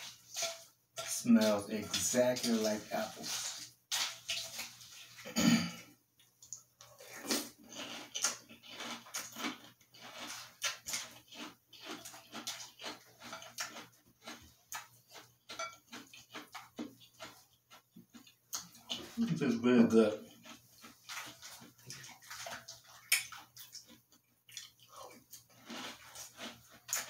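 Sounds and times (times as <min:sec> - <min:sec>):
chewing crunchy cereal: 0:00.0 - 0:05.3, 0:06.3 - 0:27.0
spoon in a glass bowl: 0:15.6 - 0:15.8.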